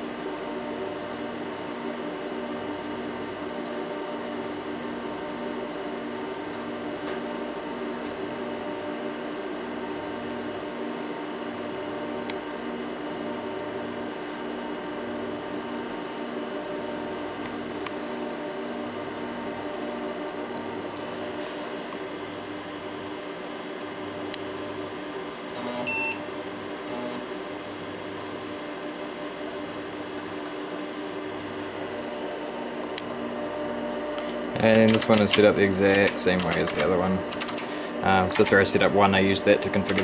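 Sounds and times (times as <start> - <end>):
computer fan and drive hum: 0.0 - 40.0
short computer beep: 25.9 - 26.3
light drive clicks: 34.1 - 37.7.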